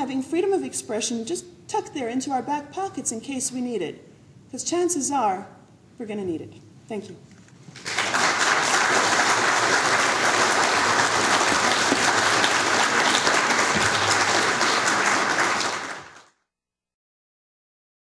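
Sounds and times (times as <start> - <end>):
audience applauding: 7.8 - 16.4.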